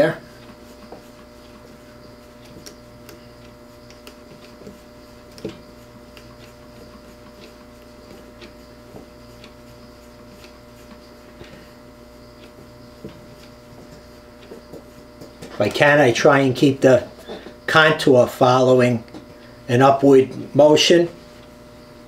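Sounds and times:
steady low hum: 0.0s - 22.0s
thread ticking and rubbing: 0.4s - 15.6s.

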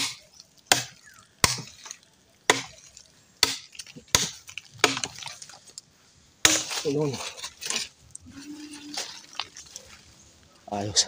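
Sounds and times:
blade chopping hard wood: 0.0s - 1.9s, 2.5s - 2.8s, 3.4s - 5.3s, 6.4s - 7.8s
small cracks and rustles: 2.8s - 5.9s, 6.6s - 10.5s.

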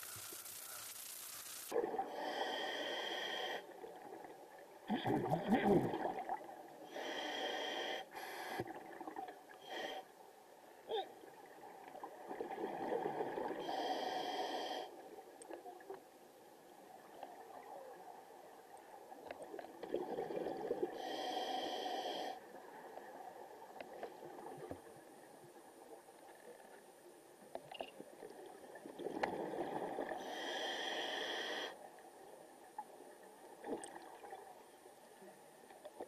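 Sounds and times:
underwater bubbling: 0.0s - 26.8s, 27.4s - 36.0s
diver breathing through regulator: 2.1s - 3.7s, 6.9s - 8.8s, 13.6s - 15.0s, 21.0s - 22.4s, 30.2s - 31.8s.

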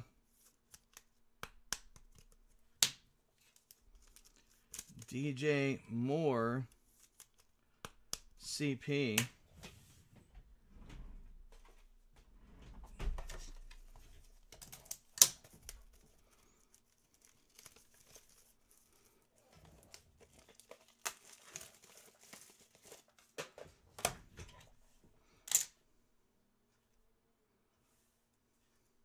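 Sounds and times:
cards and plastic sleeves handled: 0.2s - 5.4s, 6.7s - 9.3s, 13.2s - 24.2s.

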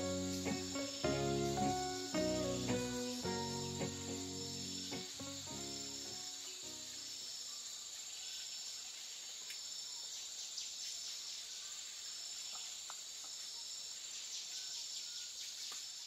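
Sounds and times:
insects buzzing: 0.0s - 8.8s
short insect chirps: 0.0s - 16.0s.

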